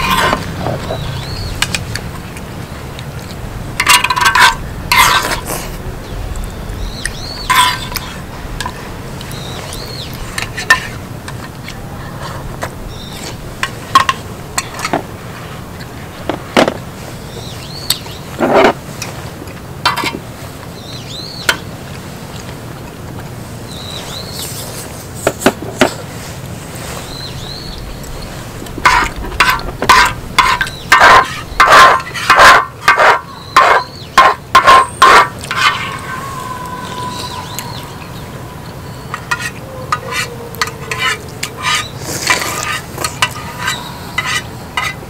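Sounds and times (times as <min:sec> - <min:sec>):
slurping and chewing: 0:39.2 - 0:44.5.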